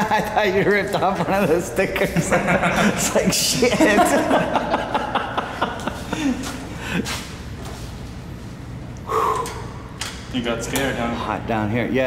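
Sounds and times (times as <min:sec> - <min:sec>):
startled gasp: 0:09.0 - 0:09.7.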